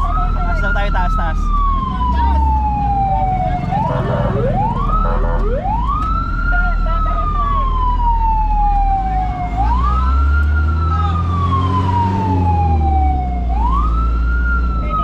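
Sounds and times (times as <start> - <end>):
low engine rumble: 0.0 - 11.5
fire truck siren wailing: 0.0 - 15.0.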